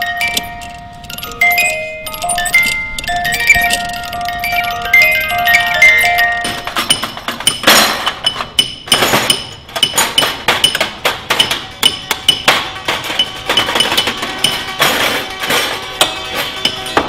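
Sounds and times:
high ringing note: 0.0s - 7.1s
percussive metallic music: 0.0s - 17.0s.

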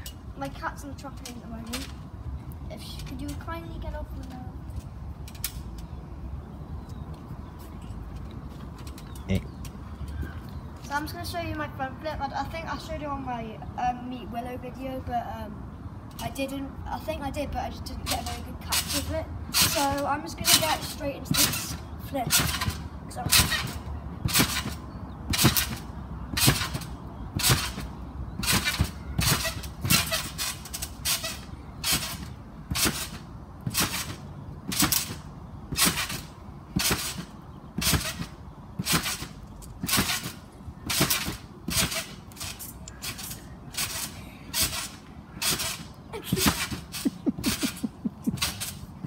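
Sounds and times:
trampoline springs bouncing: 0.0s - 6.2s, 16.1s - 49.0s.

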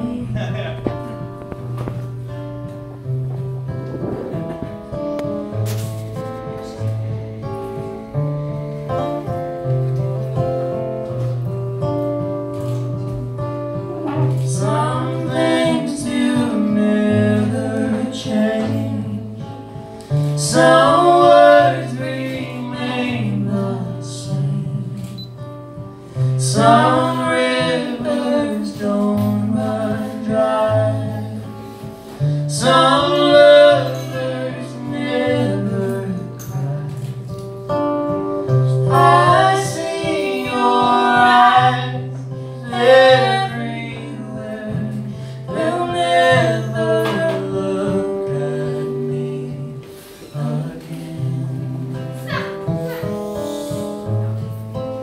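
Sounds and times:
woman singing: 0.0s - 0.6s, 13.9s - 19.6s, 20.2s - 25.2s, 26.4s - 31.8s, 32.4s - 37.2s, 38.7s - 53.9s
man singing: 0.0s - 1.3s, 14.1s - 19.4s, 20.2s - 25.2s, 26.4s - 31.8s, 32.5s - 37.3s, 38.7s - 52.4s
acoustic guitar: 0.0s - 55.0s.

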